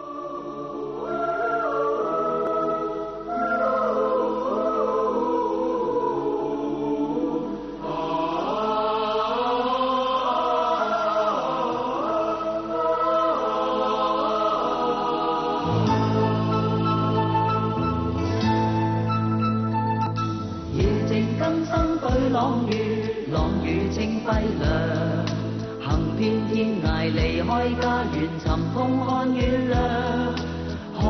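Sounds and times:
girls singing: 0.0 - 18.5, 20.7 - 31.0
instrumental accompaniment: 15.1 - 31.0.

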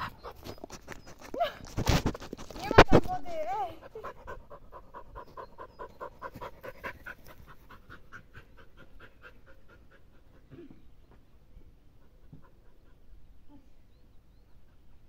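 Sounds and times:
dog panting: 0.0 - 1.6, 3.6 - 11.2, 11.8 - 13.3.

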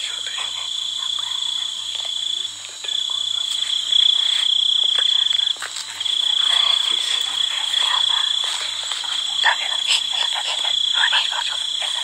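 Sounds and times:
night insects trilling: 0.0 - 12.0.

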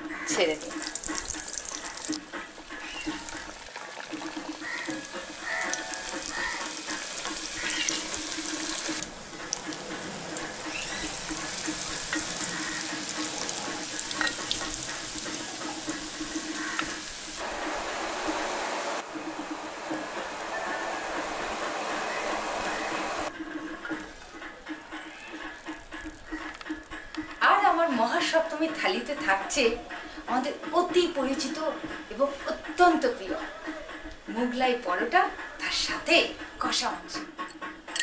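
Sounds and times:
fish deep-frying in oil: 0.1 - 18.0.

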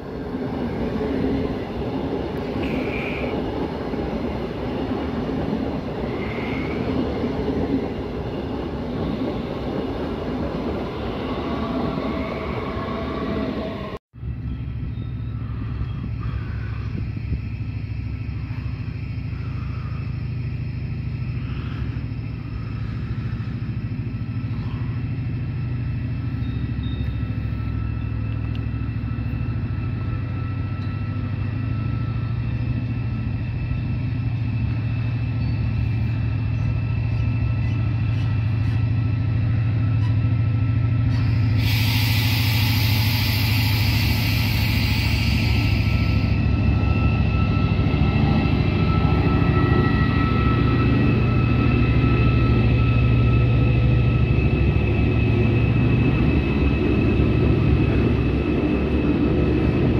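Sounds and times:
locomotive rumbling: 0.0 - 59.9
loud hiss: 41.2 - 46.5.

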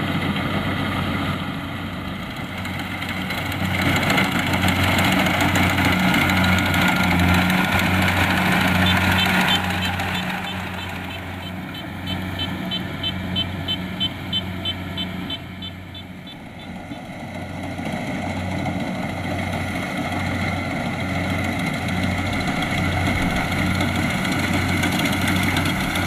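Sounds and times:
combine harvester engine running: 0.0 - 26.0
rapid high ticking: 3.3 - 17.3.

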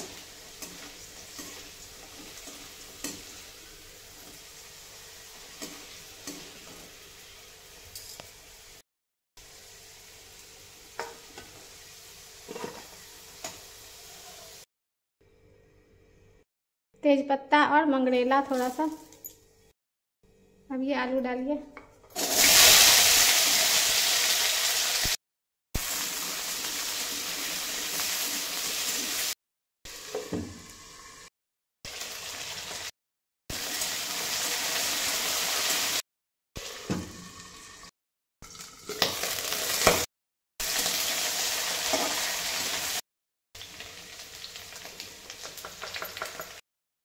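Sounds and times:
food sizzling in hot oil: 0.0 - 8.8, 9.4 - 14.7, 22.1 - 25.2, 25.8 - 31.3, 31.9 - 36.0, 36.6 - 43.0, 43.6 - 46.6.

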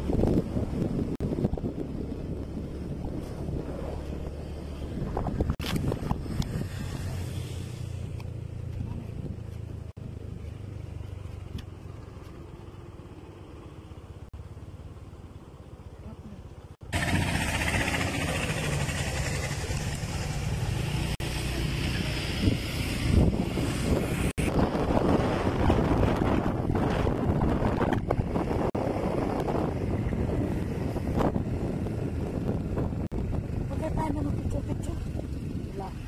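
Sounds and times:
wind buffeting microphone: 0.0 - 7.3, 16.9 - 36.0
vehicle rumble and road noise: 0.0 - 36.0.

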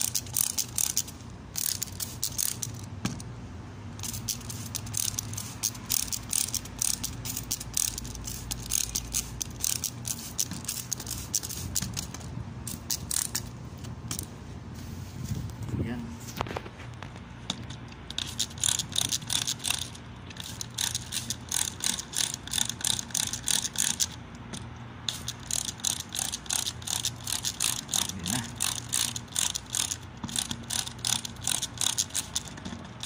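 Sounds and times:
spray bottle spritzing: 0.0 - 2.8, 4.0 - 13.5, 18.1 - 24.2, 25.1 - 33.0.

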